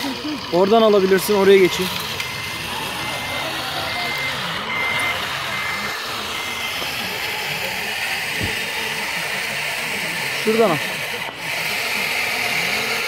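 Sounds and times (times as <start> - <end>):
high reversing beeps: 0.4 - 10.8.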